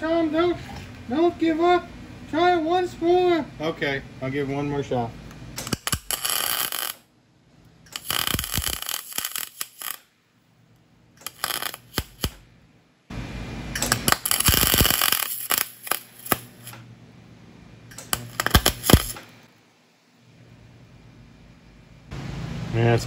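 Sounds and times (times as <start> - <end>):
welder arc crackling: 5.6 - 7.1, 7.9 - 10.1, 11.2 - 12.5, 13.7 - 16.9, 17.9 - 19.5
low hum: 10.3 - 23.0.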